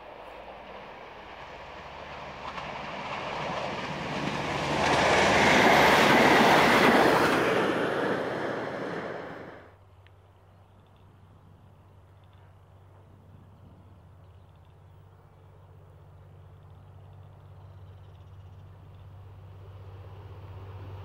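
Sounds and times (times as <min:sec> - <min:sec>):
train wheels on rails: 0:00.0 - 0:09.8
diesel railcar engine hum: 0:00.0 - 0:21.0.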